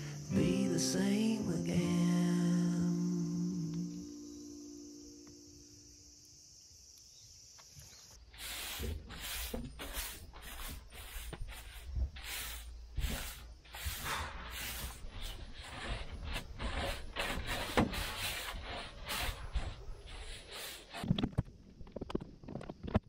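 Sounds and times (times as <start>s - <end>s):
broom sweeping grit: 8.2s - 21.0s.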